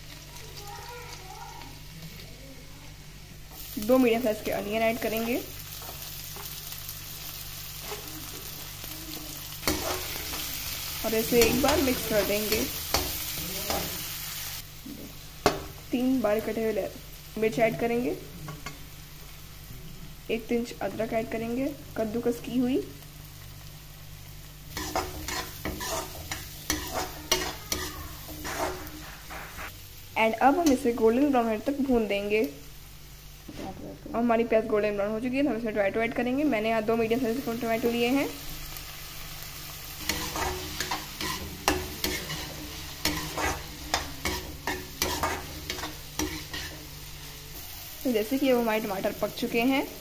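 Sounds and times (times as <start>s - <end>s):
food sizzling in oil: 0.0s - 50.0s
metal spatula scraping pan: 24.7s - 29.7s, 40.0s - 47.0s.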